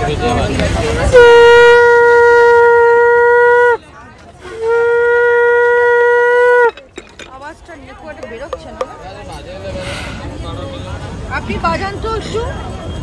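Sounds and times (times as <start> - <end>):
conch shell blasts: 1.0 - 6.9
breath: 9.7 - 10.4.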